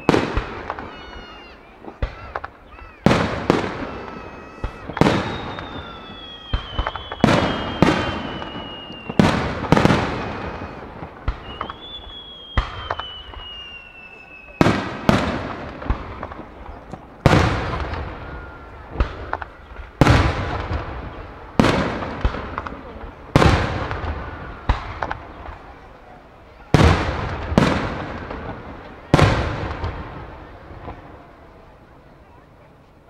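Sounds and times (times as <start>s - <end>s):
falling whistle: 4.2s - 9.3s, 11.4s - 14.7s.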